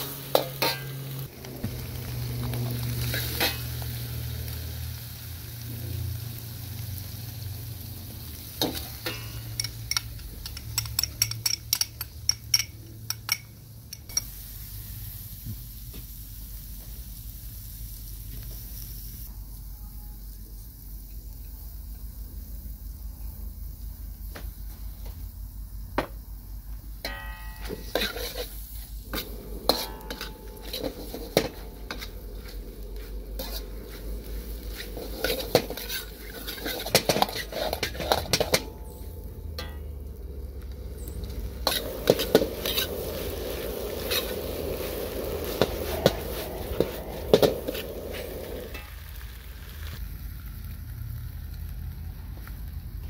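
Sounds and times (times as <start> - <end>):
metal ladle scraping a wok: 0.0 - 1.3, 2.8 - 4.1, 8.4 - 12.7, 27.0 - 40.0, 40.6 - 49.2
food sizzling in a pan: 0.0 - 53.0
low rumble: 28.8 - 36.4, 37.7 - 53.0.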